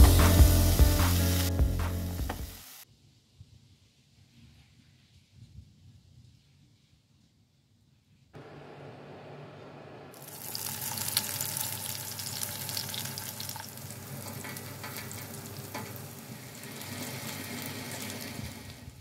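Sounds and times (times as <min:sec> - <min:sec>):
vegetables sizzling in oil: 0:00.0 - 0:02.8, 0:10.2 - 0:18.8.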